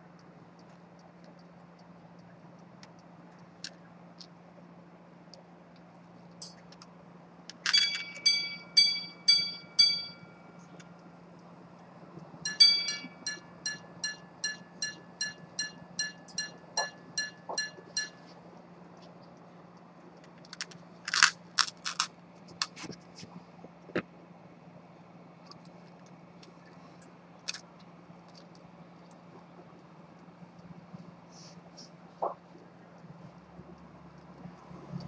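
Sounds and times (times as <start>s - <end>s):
pocket watch striking gongs: 7.6s - 10.5s, 12.4s - 18.2s.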